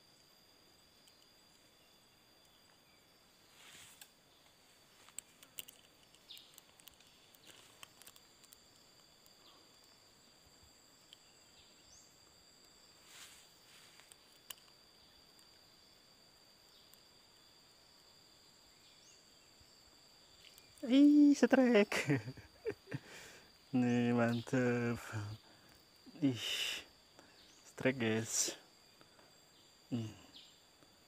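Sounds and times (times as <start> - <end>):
faint high-pitched insect drone: 0.0 - 31.0
small clicks: 3.9 - 9.9, 14.0 - 15.5.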